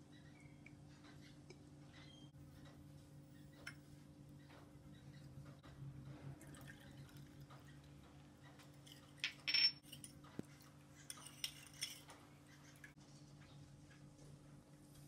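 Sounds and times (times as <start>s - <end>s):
metal spoon clinking on glass bowl: 8.8s - 10.2s.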